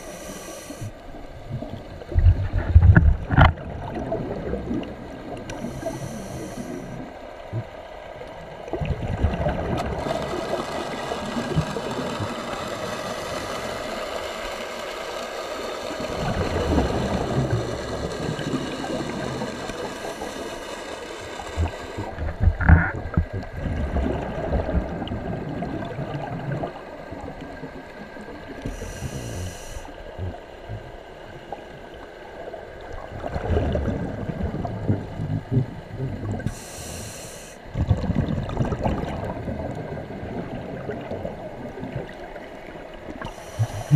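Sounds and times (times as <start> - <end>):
diver breathing through regulator: 0.0 - 1.0, 5.5 - 7.1, 28.6 - 30.4, 36.4 - 37.7, 43.2 - 43.9
bubbles rumbling and gurgling: 0.9 - 14.0, 15.9 - 20.3, 21.4 - 36.7, 37.6 - 43.9.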